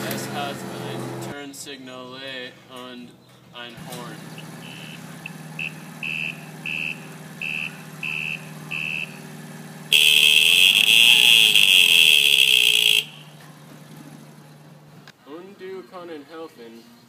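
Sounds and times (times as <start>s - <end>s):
mini bike engine idling: 3.8s - 15.0s
horn steady tone: 4.4s - 13.4s
turn-signal high beeps: 5.6s - 9.2s.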